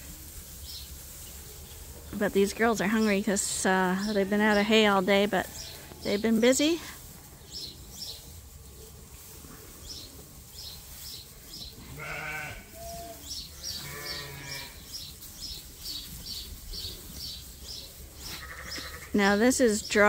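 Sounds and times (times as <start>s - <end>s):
bird chirping: 7.4s - 9.0s, 9.8s - 20.0s
sheep bleating: 11.8s - 14.8s, 18.3s - 19.2s.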